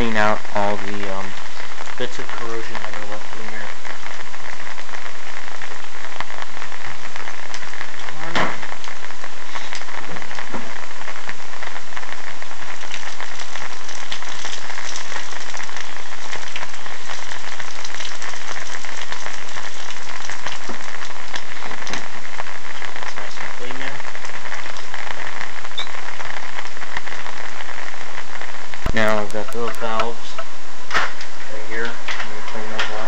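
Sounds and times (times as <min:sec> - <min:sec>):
rain pattering on umbrella: 0:00.0 - 0:33.0
sharp knock: 0:08.2 - 0:08.7.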